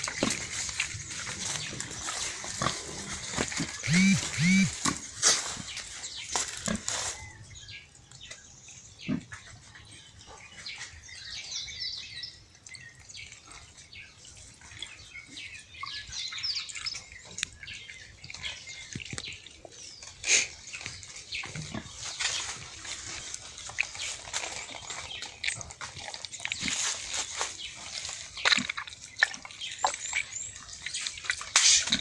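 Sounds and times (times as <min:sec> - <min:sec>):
water trickling and splashing: 0:00.0 - 0:03.8, 0:11.9 - 0:32.0
birds chirping: 0:00.0 - 0:32.0.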